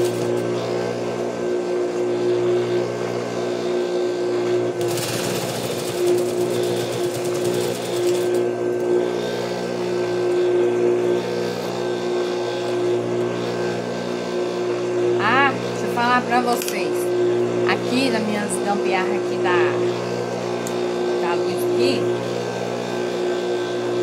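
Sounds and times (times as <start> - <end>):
sewing machine motor hum: 0.0 - 24.0
sewing machine stitching: 4.8 - 8.4.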